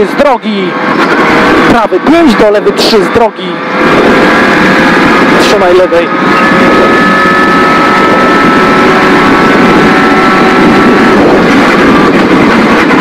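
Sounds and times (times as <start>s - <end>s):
road and tyre noise: 0.0s - 13.0s
rally car engine high note: 3.4s - 12.4s.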